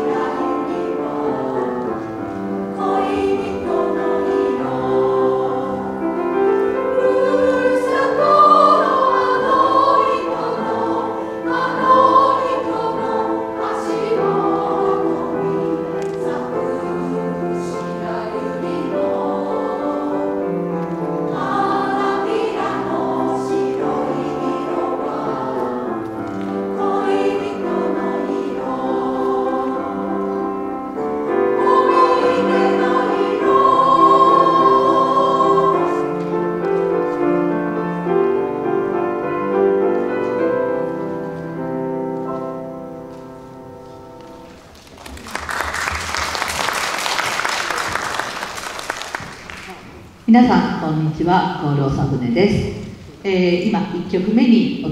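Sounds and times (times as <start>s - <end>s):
women's choir singing: 0.0s - 38.6s
grand piano accompaniment: 0.0s - 54.9s.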